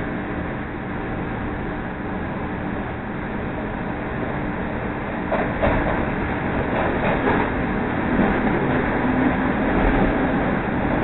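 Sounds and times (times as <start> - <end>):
train rail rumble: 0.0 - 11.0
wheels clattering on track: 5.3 - 11.0.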